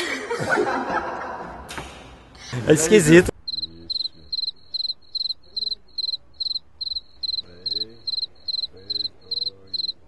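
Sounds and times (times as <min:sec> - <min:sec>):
cricket chirping: 0:03.4 - 0:10.0.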